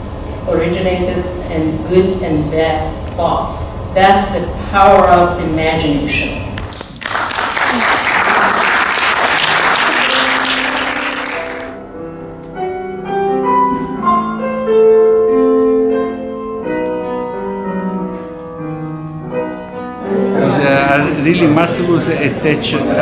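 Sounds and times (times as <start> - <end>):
audience applauding: 6.7 - 11.8
piano playing sustained notes: 8.9 - 23.0.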